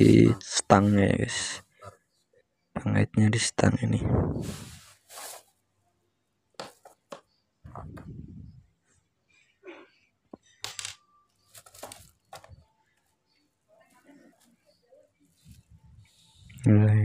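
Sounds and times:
handling rustles: 4.4s - 5.6s, 11.4s - 13.2s.

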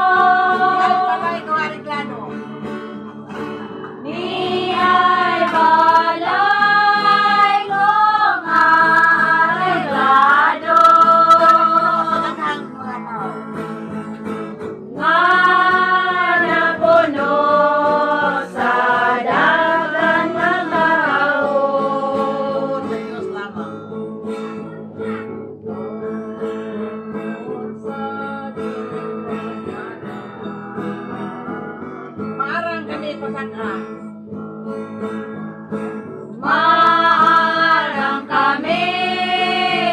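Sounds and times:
women singing together: 0.0s - 2.0s, 3.4s - 12.7s, 14.9s - 23.4s, 36.4s - 39.9s
strummed acoustic guitars: 0.0s - 39.9s.

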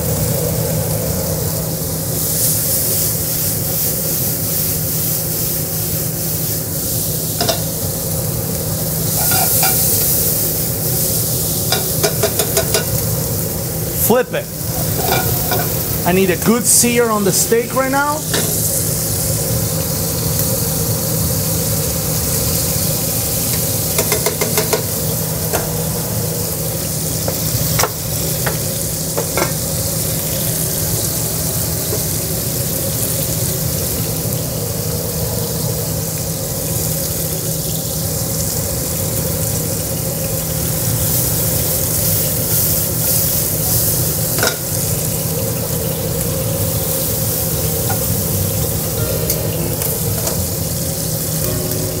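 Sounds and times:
steak sizzling in a pan: 0.0s - 52.0s.

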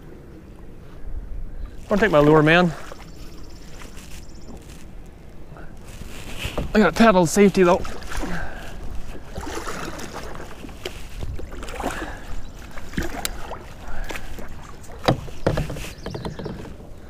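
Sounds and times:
knocks against plastic hull: 15.0s - 16.7s.

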